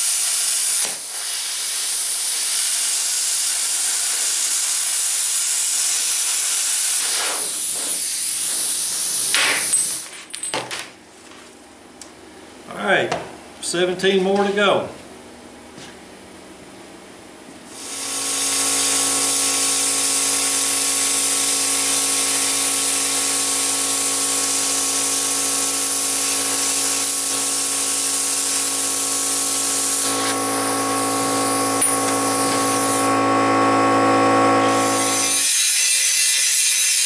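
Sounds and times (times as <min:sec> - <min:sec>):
plasma cutter hissing: 0:00.0 - 0:10.0, 0:17.7 - 0:33.2, 0:34.7 - 0:37.0
buzzing hum: 0:26.2 - 0:35.4.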